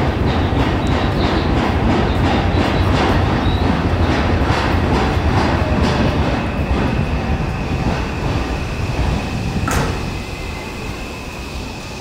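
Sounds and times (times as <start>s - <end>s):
train wheels rumbling: 0.0s - 12.0s
high brake squeal: 9.9s - 12.0s.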